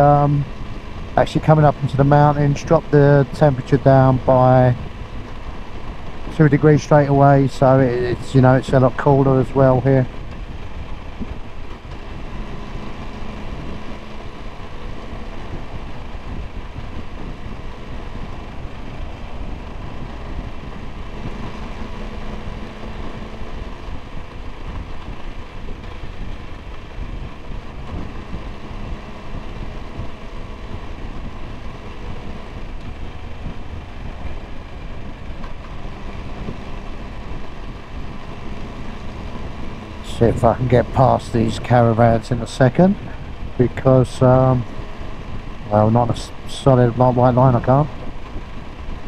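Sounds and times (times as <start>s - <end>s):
motorcycle engine cruising: 0.0s - 49.0s
wind rush on microphone: 0.0s - 49.0s.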